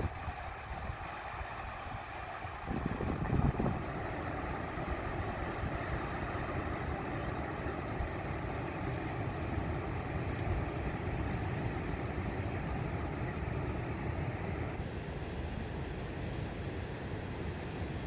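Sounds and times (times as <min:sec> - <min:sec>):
wind buffeting the microphone: 0:00.0 - 0:08.5
surf breaking on a beach: 0:00.0 - 0:18.0.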